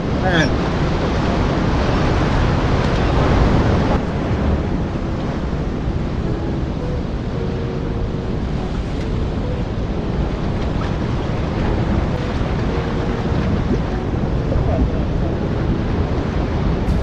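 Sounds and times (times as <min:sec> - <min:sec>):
wind buffeting microphone: 0:00.0 - 0:17.0
surf breaking on rocks: 0:08.4 - 0:17.0.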